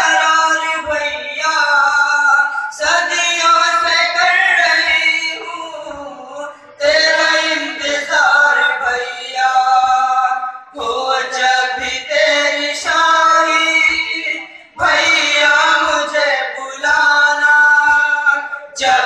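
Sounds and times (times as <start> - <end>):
voices chanting a lament: 0.0 - 19.0
chest-beating thumps: 10.8 - 16.2.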